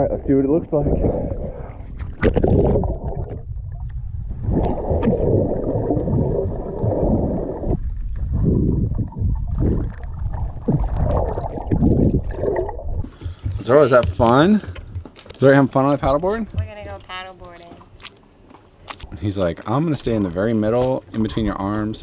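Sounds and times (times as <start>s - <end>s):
muffled underwater rumble: 0.0s - 14.4s.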